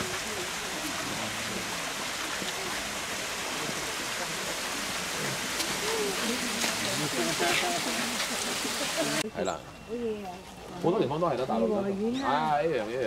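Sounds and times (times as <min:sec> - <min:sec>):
steady hiss: 0:00.0 - 0:09.2
faint voices murmuring: 0:00.0 - 0:13.0.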